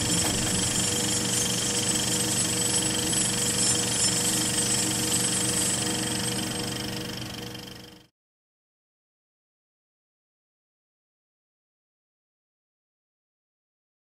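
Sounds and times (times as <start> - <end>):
electronic drone with buzzing pulse: 0.0 - 8.0.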